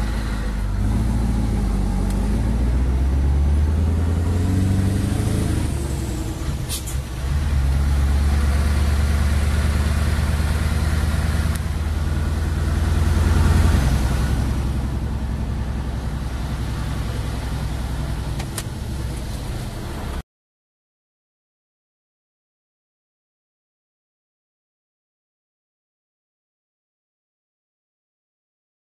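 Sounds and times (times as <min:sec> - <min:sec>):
diesel engine pulling: 0:00.0 - 0:20.2.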